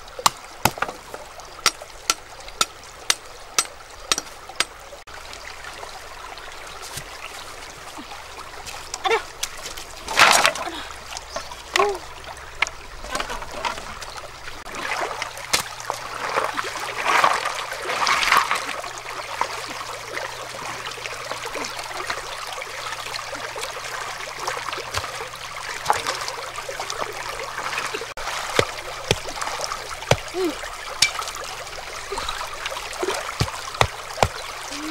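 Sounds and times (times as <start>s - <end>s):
stream trickling over rocks: 0.0s - 34.9s
hammering wooden stake: 1.6s - 4.7s, 30.0s - 30.4s, 33.4s - 34.4s
rocks splashing in water: 24.4s - 34.9s.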